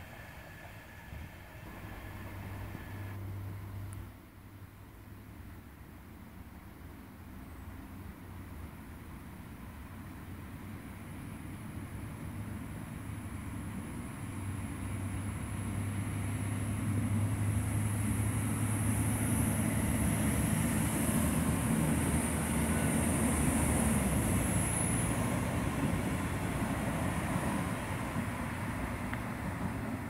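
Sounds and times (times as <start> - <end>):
thin high whine: 0.0 - 3.2
diesel train engine drone: 0.0 - 7.0, 7.6 - 30.0.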